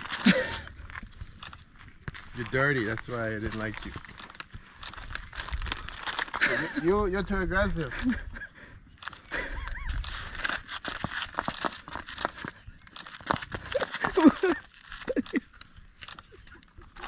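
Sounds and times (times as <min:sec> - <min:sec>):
plastic bag crinkling: 0:00.0 - 0:01.0, 0:01.7 - 0:06.8, 0:10.0 - 0:17.0.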